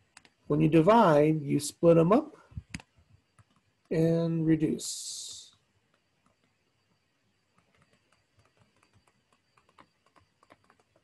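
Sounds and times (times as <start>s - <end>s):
stylus tapping tablet screen: 5.8s - 11.0s.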